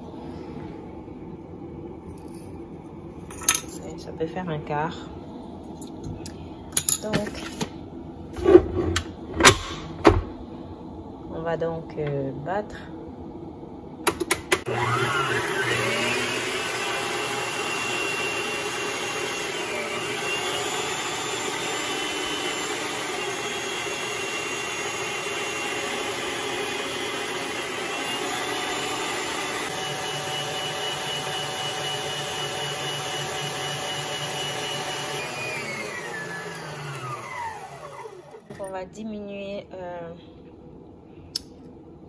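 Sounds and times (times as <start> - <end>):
stand mixer motor whine: 14.5 - 38.5.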